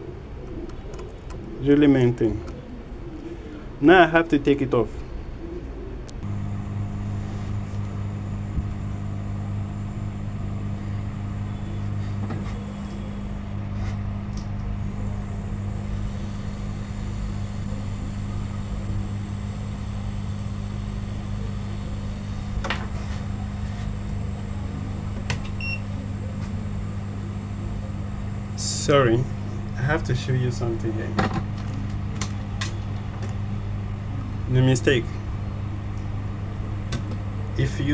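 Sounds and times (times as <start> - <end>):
hot air gun blowing: 6.3 - 13.4, 14.8 - 34.2.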